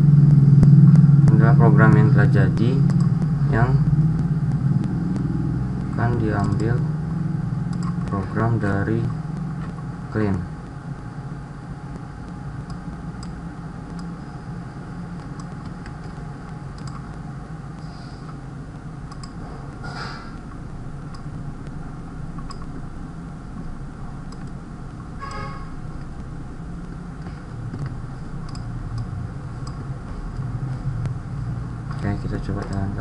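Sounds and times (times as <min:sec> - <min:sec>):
steady low hum: 0:00.0 - 0:33.0
computer mouse and keyboard clicks: 0:04.2 - 0:06.8, 0:07.7 - 0:09.8, 0:15.2 - 0:17.2, 0:19.1 - 0:20.5, 0:21.1 - 0:22.8, 0:24.3 - 0:24.6, 0:25.2 - 0:31.2, 0:31.9 - 0:33.0.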